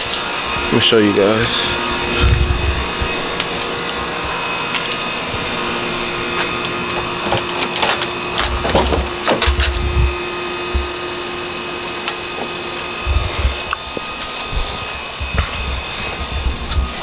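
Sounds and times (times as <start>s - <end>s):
steady machine hum: 0.0s - 17.0s
short low thumps: 2.1s - 3.2s, 9.5s - 10.9s, 14.5s - 17.0s.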